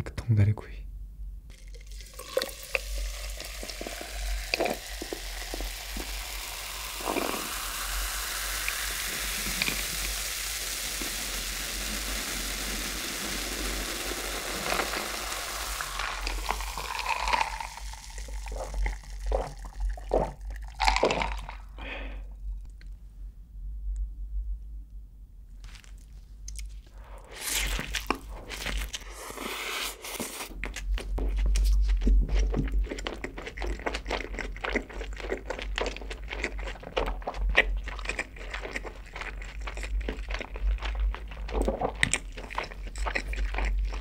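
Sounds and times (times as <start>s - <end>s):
cola fizzing over ice: 1.5s - 21.8s.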